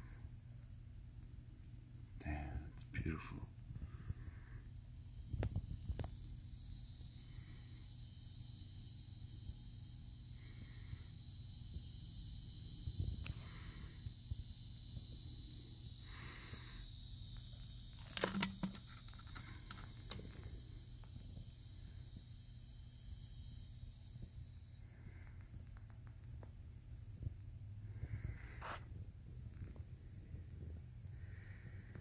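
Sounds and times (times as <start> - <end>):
high insect chirring: 0.2 - 32.0
short clatter: 18.0 - 19.9.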